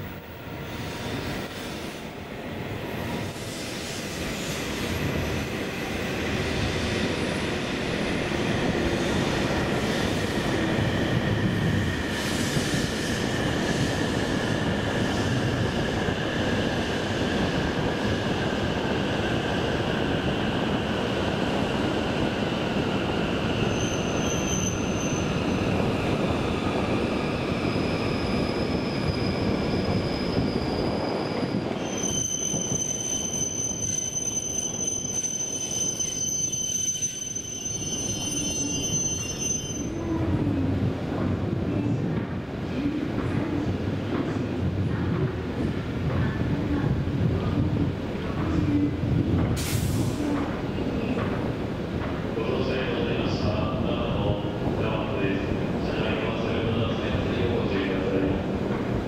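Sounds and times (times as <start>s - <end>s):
train wheels rumbling on rail: 0.0s - 59.0s
high wheel squeals: 23.5s - 25.6s, 27.6s - 40.0s.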